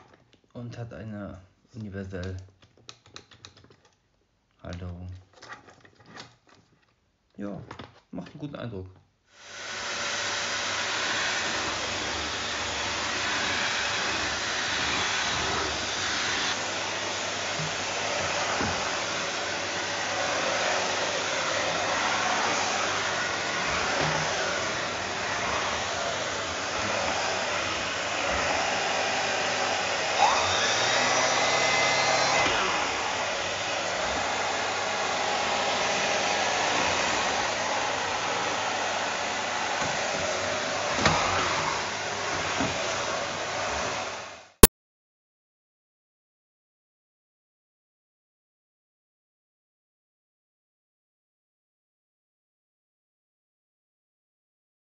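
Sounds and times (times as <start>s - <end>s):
vacuum cleaner running: 9.4s - 44.7s.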